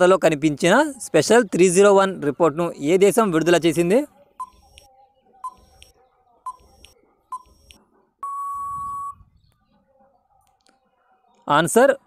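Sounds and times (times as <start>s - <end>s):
long electronic beep: 7.3s - 9.2s.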